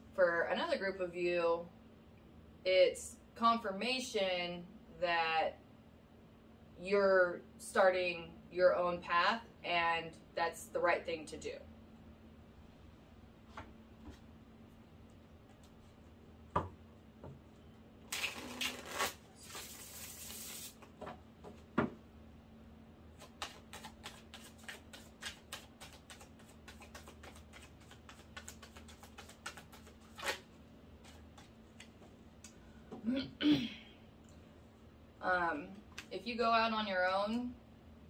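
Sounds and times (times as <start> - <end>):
cards rustling while shuffled: 23.2 - 32.1.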